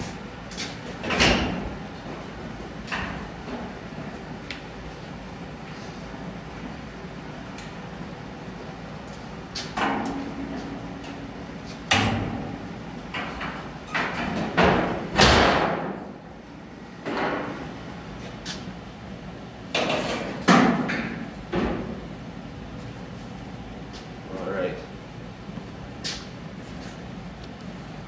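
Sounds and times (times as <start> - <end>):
metal hood clunks: 11.9 - 12.6.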